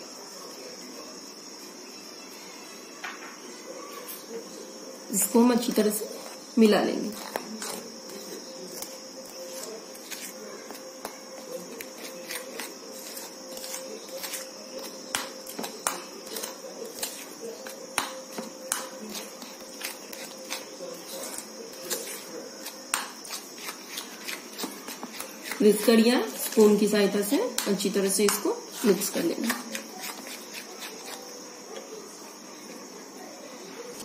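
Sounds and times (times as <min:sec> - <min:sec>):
spoon stirring thick batter: 0:04.1 - 0:34.0
spoon scraping against bowl: 0:05.7 - 0:31.6.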